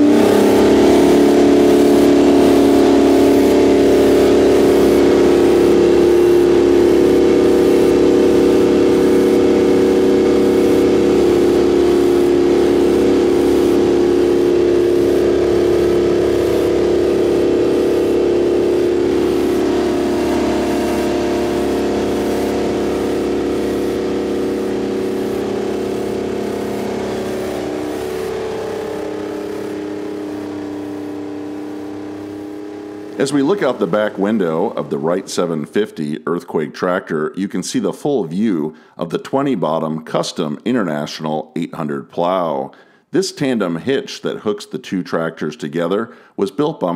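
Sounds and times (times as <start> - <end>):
tractor diesel engine running: 0.0 - 36.0.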